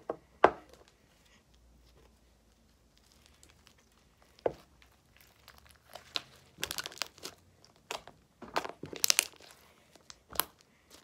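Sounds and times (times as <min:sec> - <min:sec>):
slime crackling and popping: 0:02.8 - 0:11.0.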